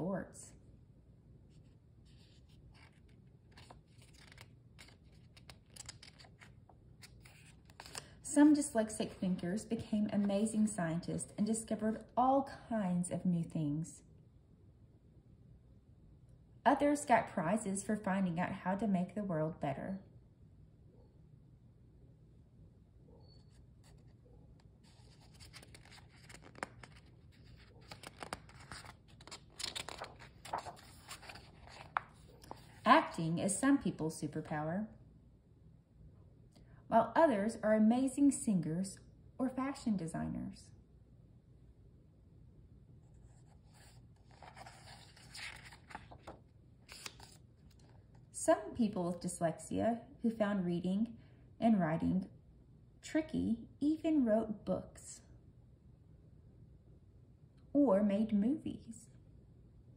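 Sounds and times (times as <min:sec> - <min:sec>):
faint room hum: 0:00.0 - 0:59.9
book pages rustling: 0:01.5 - 0:08.1, 0:23.8 - 0:33.2, 0:43.1 - 0:48.3.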